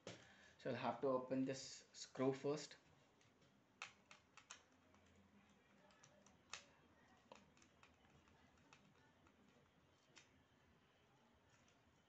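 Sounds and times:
screwdriver clicks and ticks: 3.8s - 5.2s, 7.3s - 9.4s.

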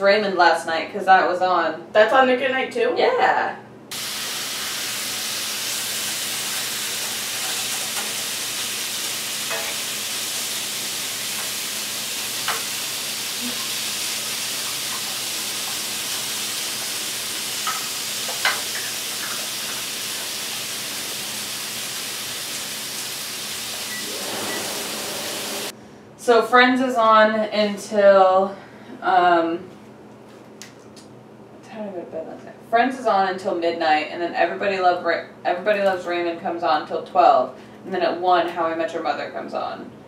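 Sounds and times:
food sizzling in frying pan: 3.9s - 25.7s.

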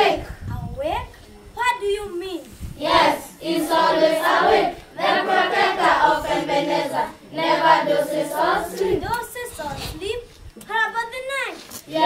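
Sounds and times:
children singing together: 0.0s - 0.3s, 2.8s - 9.1s.

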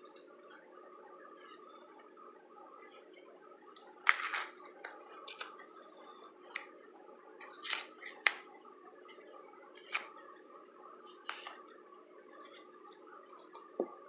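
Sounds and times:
paper packet tearing: 4.1s - 4.6s.

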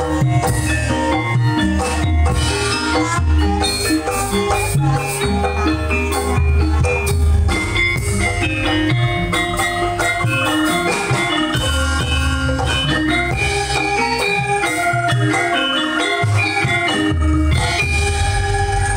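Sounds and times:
drums: 0.0s - 18.9s
gamelan keys and gongs: 0.0s - 18.9s
pulsing low bass: 17.3s - 18.9s.

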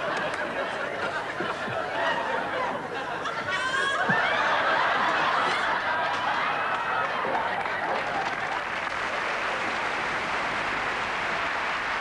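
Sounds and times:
audience laughing: 0.0s - 9.6s.

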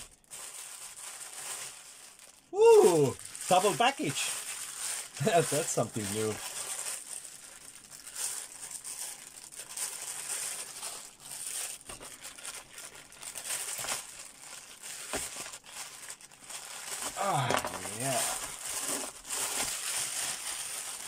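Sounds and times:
plastic bag crinkling: 0.0s - 21.0s
knife cutting plastic: 17.0s - 20.9s.

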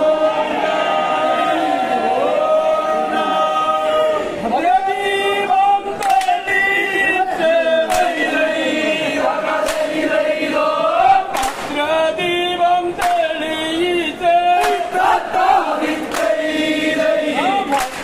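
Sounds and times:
men singing together: 0.0s - 18.0s
hand clap keeping time: 6.0s - 6.6s, 7.8s - 8.3s, 9.5s - 10.2s, 11.3s - 12.0s, 12.9s - 13.8s, 14.5s - 18.0s.

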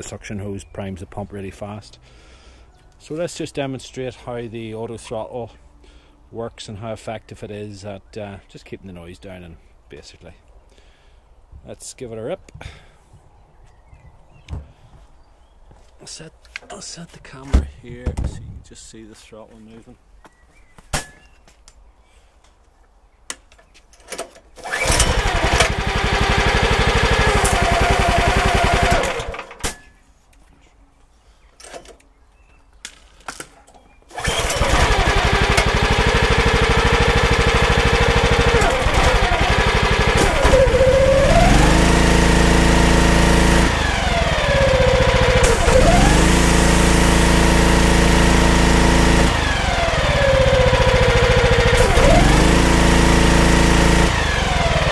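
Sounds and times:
pressure washer engine running: 24.6s - 29.6s, 34.1s - 54.9s.

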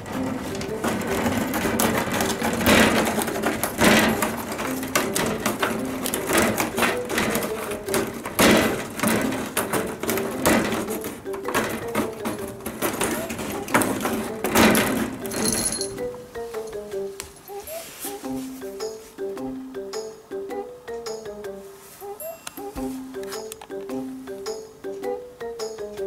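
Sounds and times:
cat claws scratching glass: 0.0s - 15.4s
light background music: 0.0s - 26.0s.

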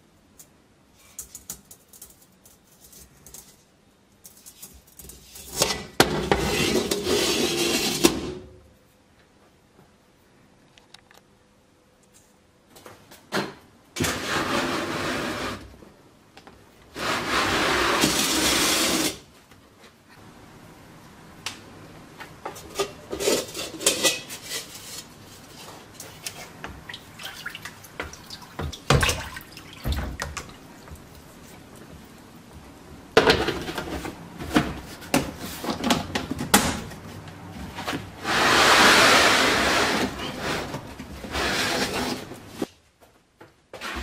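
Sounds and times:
water splashing: 26.8s - 31.1s.

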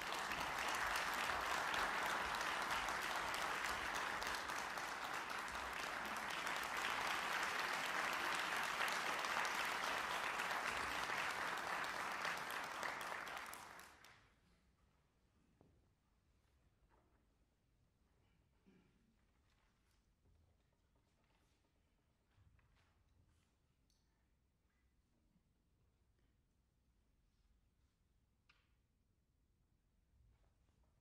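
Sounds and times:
audience applauding: 0.0s - 14.1s.

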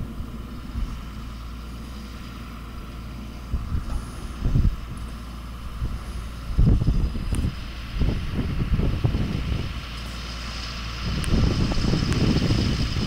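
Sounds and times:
tractor diesel engine running: 0.0s - 13.0s
wind buffeting microphone: 3.4s - 13.0s.

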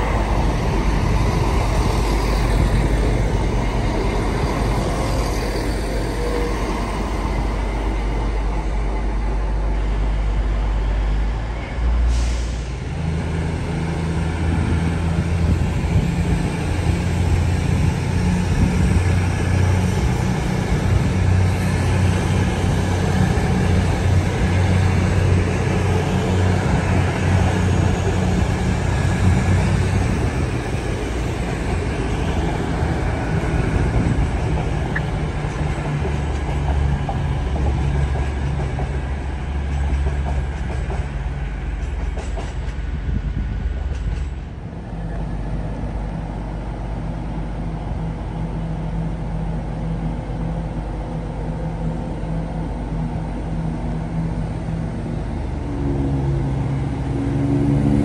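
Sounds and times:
diesel train engine running: 0.0s - 58.0s
air-brake hiss: 12.0s - 12.8s.

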